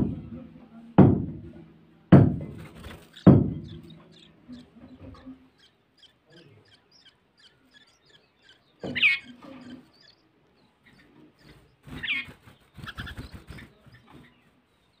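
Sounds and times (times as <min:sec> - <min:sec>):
loud thumps with ringing: 0:01.0 - 0:04.2
nestlings chirping: 0:02.6 - 0:15.0.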